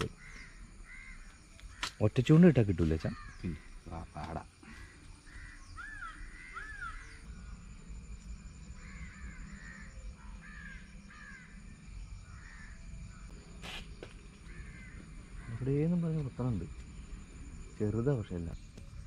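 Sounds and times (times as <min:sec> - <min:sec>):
crows cawing: 0:00.0 - 0:02.0, 0:03.0 - 0:07.3, 0:08.8 - 0:13.3, 0:14.3 - 0:15.9
steady low rumble: 0:07.1 - 0:13.6.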